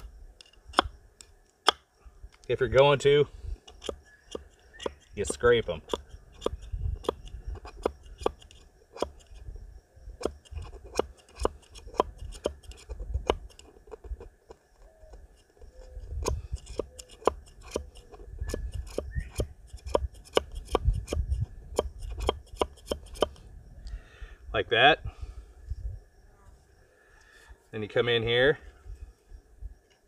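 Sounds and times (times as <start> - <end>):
axe head scraping wood: 3.7 - 9.4, 10.2 - 14.3, 15.1 - 23.4.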